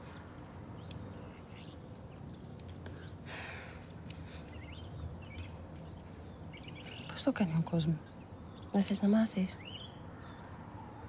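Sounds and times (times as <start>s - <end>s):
low outdoor hum: 0.0s - 11.0s.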